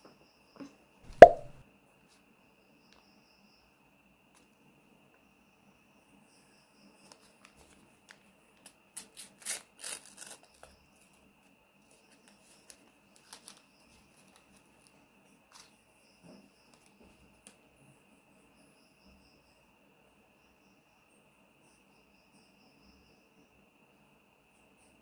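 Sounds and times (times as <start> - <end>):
paper tearing and crinkling: 9.2 - 10.5.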